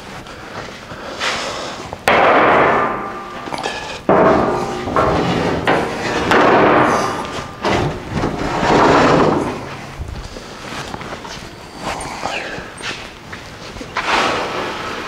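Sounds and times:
steel rail clanging: 2.1s - 10.1s.

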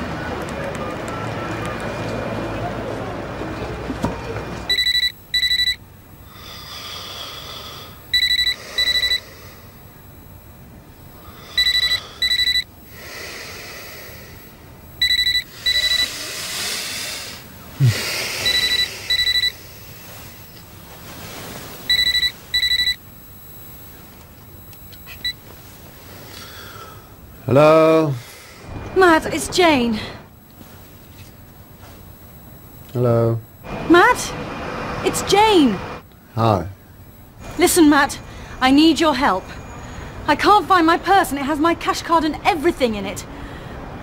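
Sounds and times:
phone ringing double beep: 4.7s - 6.3s, 7.9s - 12.8s, 14.9s - 16.2s, 18.4s - 20.6s, 21.4s - 25.4s.

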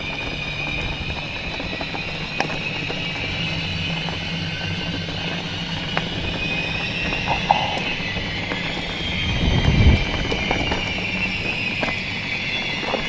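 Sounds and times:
bike tyres rushing on rocky trail: 0.0s - 13.0s
stones and bike chain rattling: 6.1s - 8.6s.

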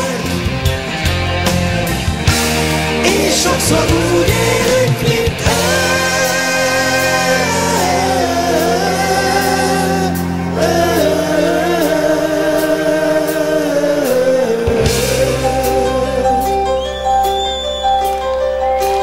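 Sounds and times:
steady low drone: 0.0s - 19.0s
person singing long wavering notes: 3.1s - 16.8s.

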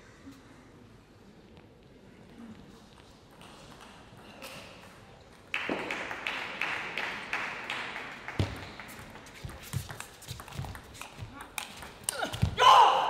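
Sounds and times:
table tennis ball bouncing: 8.3s - 12.6s.

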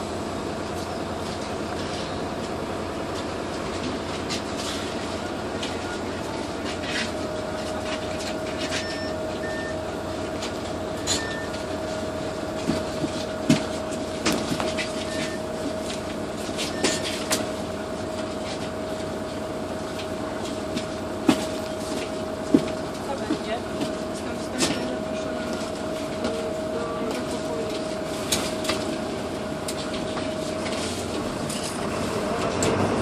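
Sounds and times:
bus engine and road noise: 0.0s - 33.0s
short beeps: 8.8s - 9.8s, 11.0s - 11.6s.

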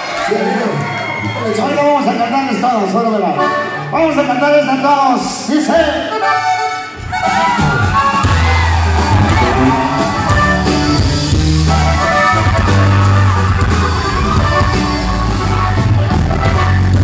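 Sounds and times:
live band music: 0.0s - 17.0s
accordion melody: 3.3s - 4.7s, 5.9s - 17.0s
bass line and drums: 7.0s - 17.0s.

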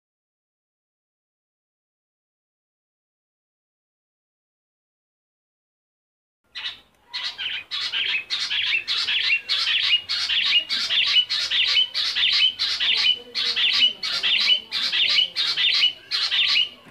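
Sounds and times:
quail calling sharp notes: 6.6s - 16.9s.

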